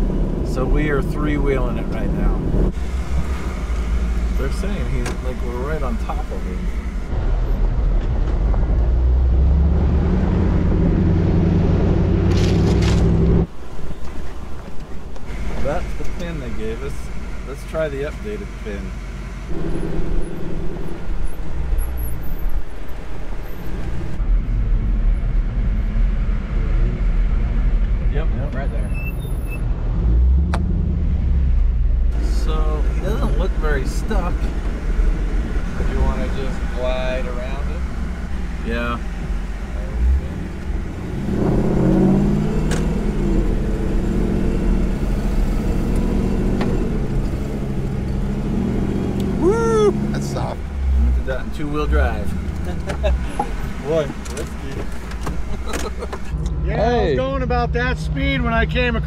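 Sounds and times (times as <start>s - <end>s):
engine revving and running: 29.9s - 56.3s.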